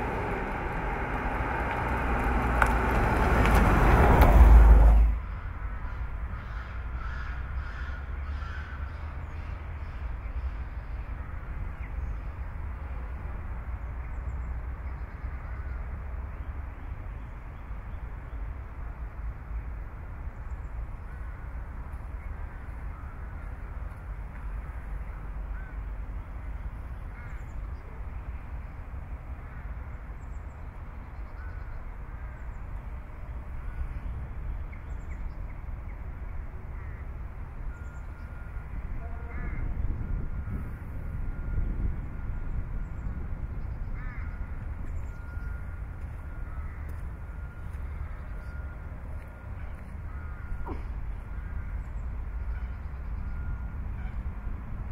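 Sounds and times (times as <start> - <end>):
birds calling: 0.0 - 4.0
low rumble: 0.0 - 5.3.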